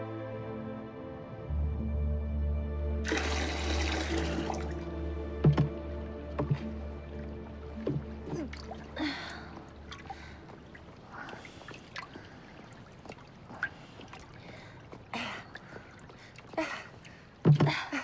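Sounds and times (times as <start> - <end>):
water sloshing in a wooden bucket: 3.1 - 18.0
breathy effort sounds: 7.8 - 18.0.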